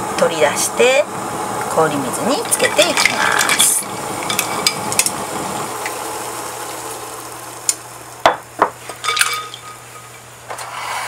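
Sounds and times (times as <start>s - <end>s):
steady hiss: 0.0s - 11.0s
ice cubes clinking against glass bowl: 9.0s - 9.9s.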